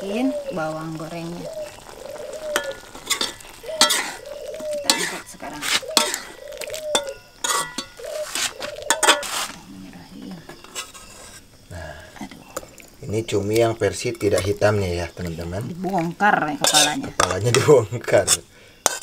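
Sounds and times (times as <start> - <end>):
metal spatula scraping a wok: 2.4 - 9.6, 10.5 - 11.5, 16.6 - 19.0.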